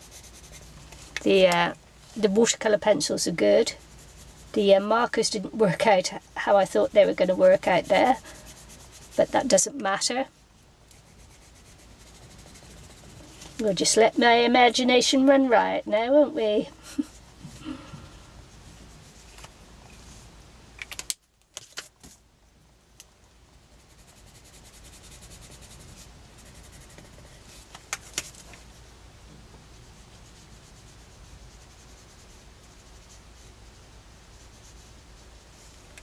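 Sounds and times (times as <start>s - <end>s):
pencil scratching on paper: 0.0s - 1.6s, 2.2s - 10.2s, 10.9s - 15.6s, 23.8s - 28.7s, 29.8s - 36.0s.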